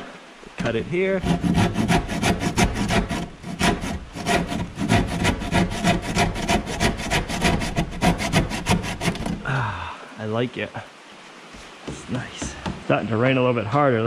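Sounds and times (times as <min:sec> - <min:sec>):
handsaw cutting wood: 0:00.6 - 0:09.4.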